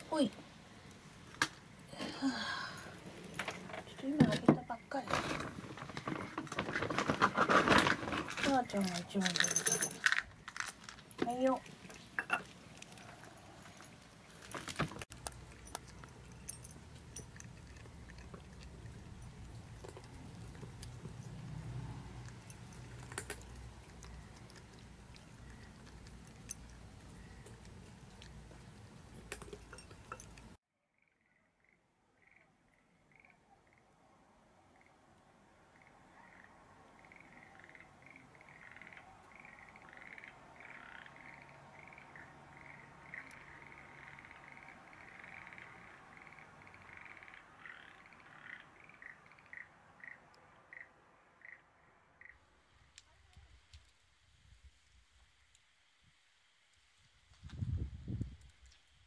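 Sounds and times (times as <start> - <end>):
frogs croaking: 4.3 - 5.0, 30.9 - 52.6
cats chewing food: 5.2 - 30.6.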